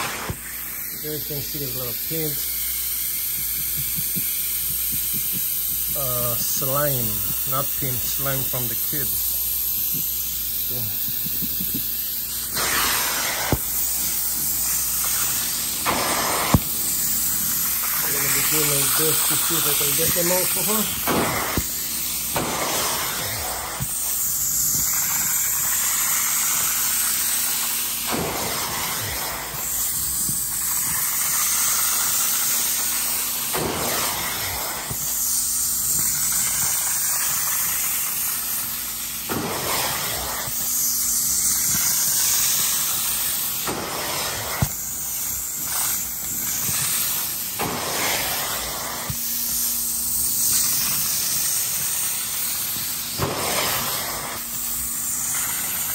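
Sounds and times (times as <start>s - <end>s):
upholstery extractor hiss and suction: 0.0s - 55.9s.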